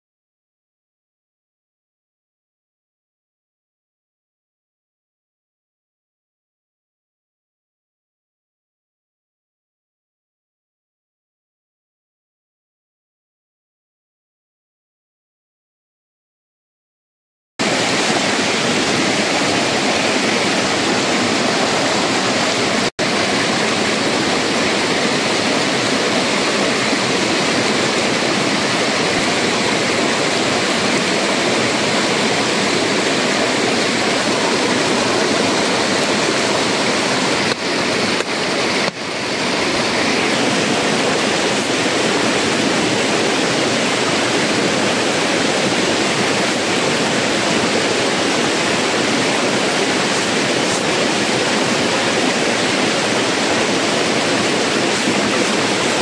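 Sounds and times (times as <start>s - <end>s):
stream rushing over rocks: 17.6s - 56.0s.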